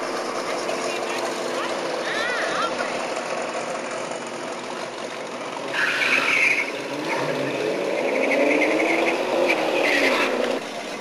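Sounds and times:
car engine revving: 0.0s - 11.0s
high-pitched tyre squeal: 5.6s - 10.6s.

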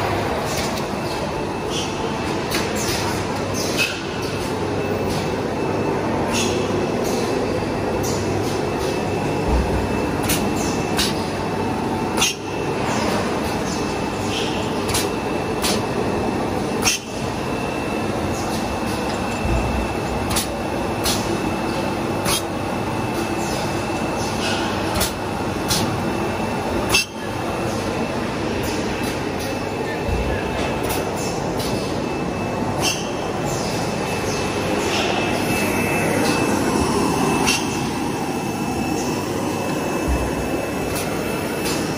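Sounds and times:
machines humming: 0.0s - 41.9s
high steady whine: 4.5s - 41.9s
sharp mechanical clicks and clacks: 18.4s - 21.3s, 24.3s - 25.9s.

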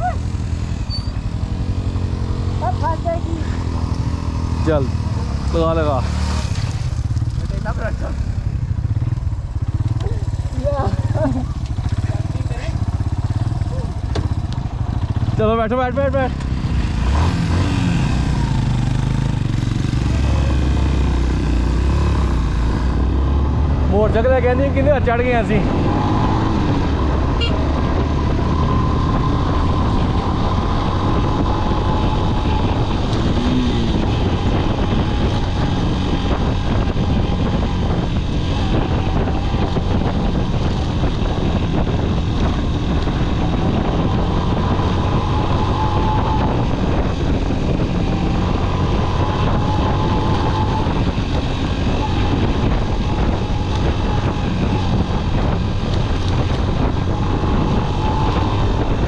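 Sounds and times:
motorcycle engine running: 0.0s - 59.0s
wind noise on microphone: 0.0s - 59.0s.

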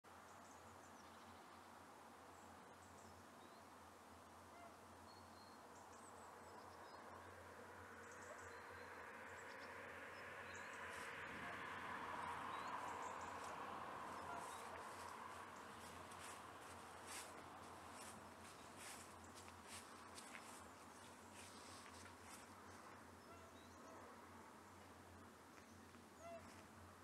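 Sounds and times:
low steady background noise: 0.1s - 27.0s
bird chirps: 12.2s - 16.4s.

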